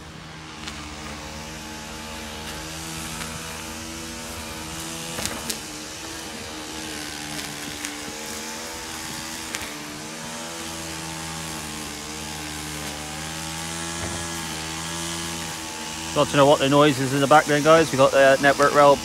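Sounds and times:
hedge trimmer running: 0:00.0 - 0:19.0.

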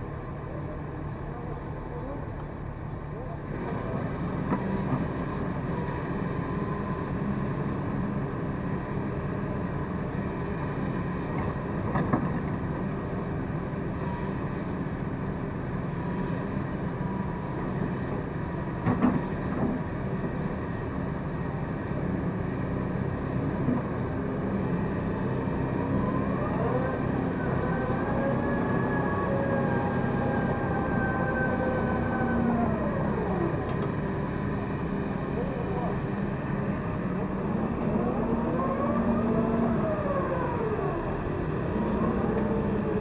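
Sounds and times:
excavator diesel engine: 0:00.0 - 0:43.0
rising whine: 0:25.8 - 0:43.0.

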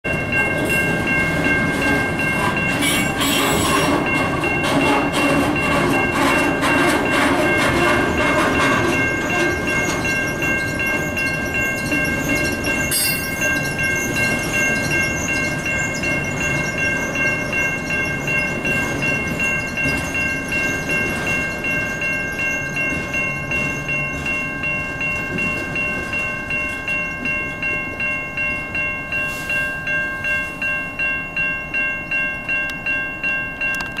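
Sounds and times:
freight train rumble and wheel clatter: 0:00.0 - 0:34.0
railroad crossing bell ringing: 0:00.0 - 0:34.0.

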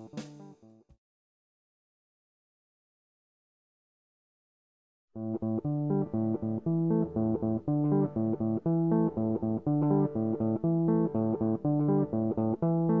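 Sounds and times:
bass guitar line: 0:00.0 - 0:00.5, 0:05.2 - 0:13.0
plucked guitar notes: 0:00.0 - 0:00.5, 0:05.2 - 0:13.0.

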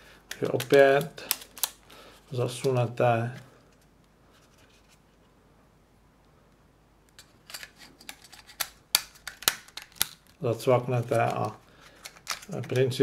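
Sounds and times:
plastic parts clicking: 0:00.3 - 0:01.8, 0:07.1 - 0:10.4, 0:11.0 - 0:13.0
plastic parts scraping: 0:07.2 - 0:13.0.

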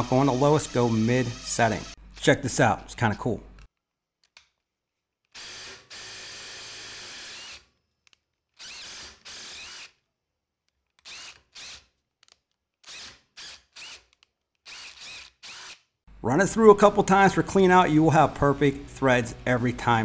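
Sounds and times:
impact driver motor whine: 0:00.0 - 0:02.0.

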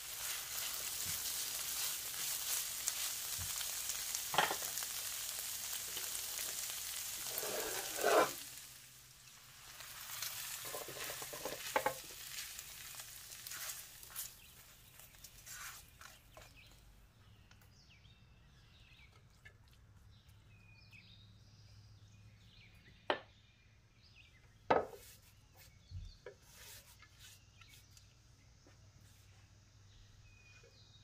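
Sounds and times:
spatula stirring: 0:00.0 - 0:04.6, 0:07.2 - 0:08.6, 0:10.0 - 0:16.7
fried meat sizzling and scraping: 0:00.0 - 0:16.8, 0:24.8 - 0:27.9
faint bird chirps: 0:20.2 - 0:31.0.

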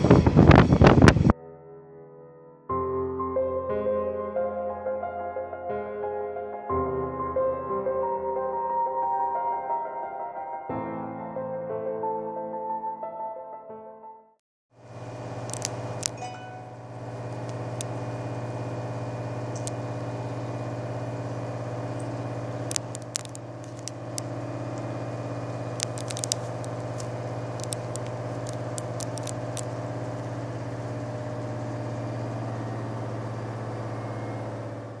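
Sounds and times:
steady engine hum: 0:14.8 - 0:35.0
sharp clicks and crackles: 0:15.4 - 0:16.2, 0:17.3 - 0:18.0, 0:19.5 - 0:19.8, 0:21.9 - 0:31.3.

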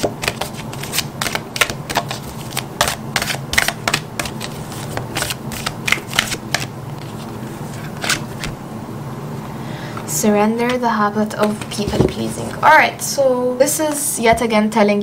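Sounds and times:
cards being shuffled by hand: 0:00.0 - 0:08.6.

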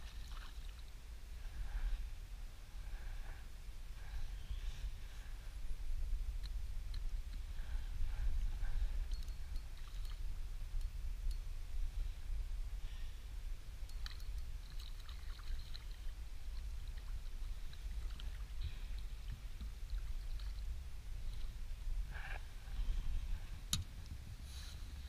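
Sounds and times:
water lapping: 0:00.0 - 0:00.9, 0:14.0 - 0:21.5
wind rumbling on microphone: 0:00.0 - 0:25.0.

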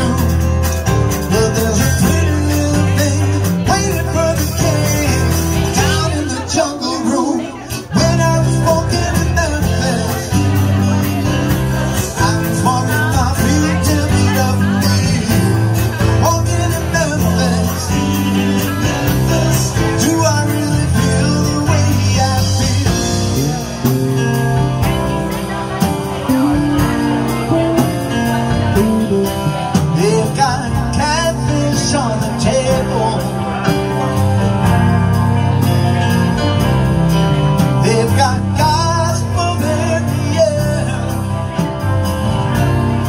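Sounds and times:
steady drum beat: 0:00.0 - 0:06.6, 0:07.7 - 0:43.0
live rock band playing: 0:00.0 - 0:43.0.

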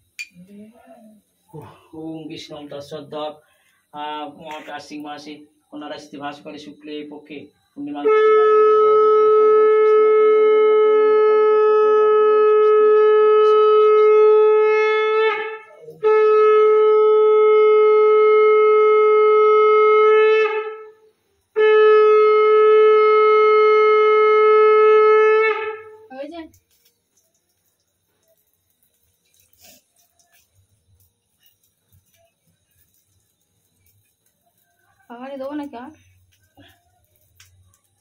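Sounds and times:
conch shell blown: 0:07.8 - 0:26.2.

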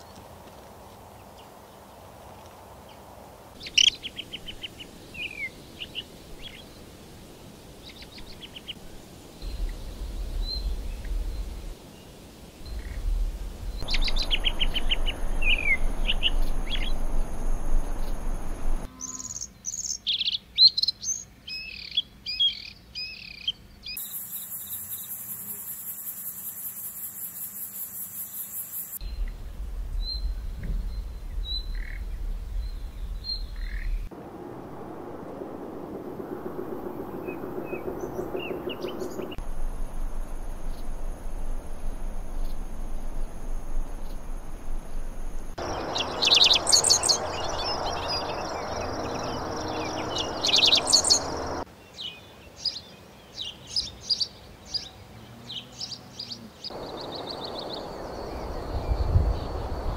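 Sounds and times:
songbirds chirping and singing: 0:09.4 - 0:24.0, 0:45.6 - 0:59.9
high fast bird trill: 0:45.6 - 0:51.6.

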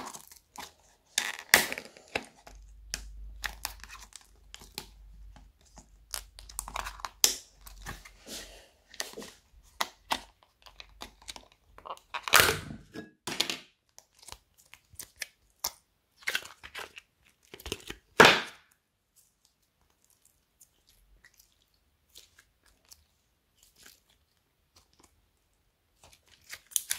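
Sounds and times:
thin plastic crinkling: 0:00.0 - 0:08.2, 0:19.0 - 0:26.9.

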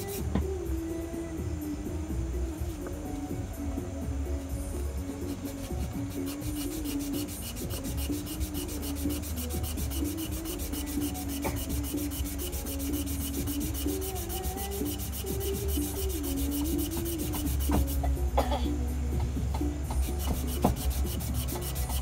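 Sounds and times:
sandpaper rubbing on wood: 0:00.0 - 0:00.3, 0:05.2 - 0:18.1, 0:19.9 - 0:22.0.

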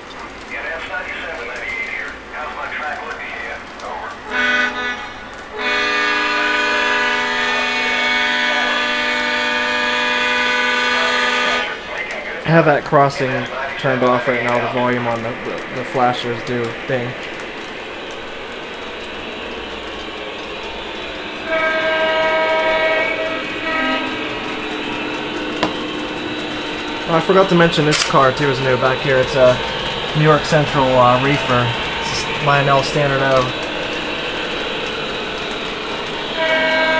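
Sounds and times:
model train running on track: 0:00.0 - 0:36.9
diesel air horn blast: 0:04.3 - 0:11.8, 0:21.4 - 0:29.6, 0:36.3 - 0:36.9
sharp click: 0:27.9 - 0:28.2.

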